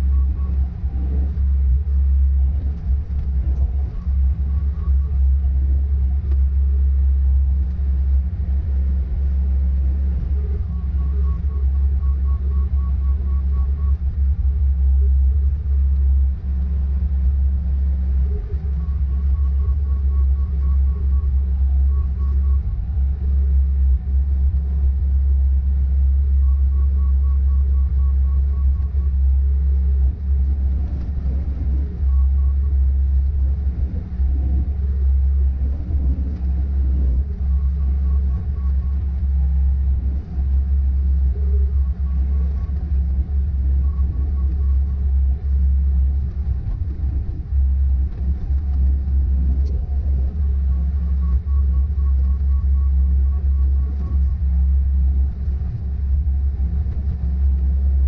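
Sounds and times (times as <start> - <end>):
diesel engine rumbling: 0.0 - 58.0
faint rapid high beeping: 10.1 - 14.1, 18.3 - 23.3, 36.6 - 46.3, 50.0 - 54.7.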